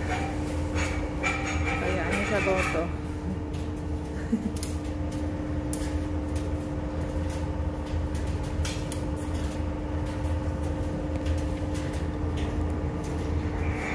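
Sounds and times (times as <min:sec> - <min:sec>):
load rattling in dryer drum: 0:00.0 - 0:03.0
tumble dryer motor hum: 0:00.0 - 0:13.9.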